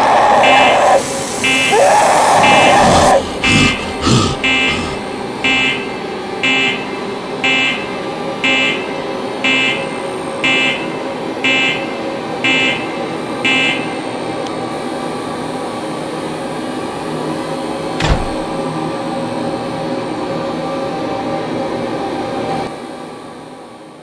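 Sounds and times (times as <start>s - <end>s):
alarm buzzer pulsing: 0.0s - 14.1s
steady mechanical hum: 0.0s - 24.0s.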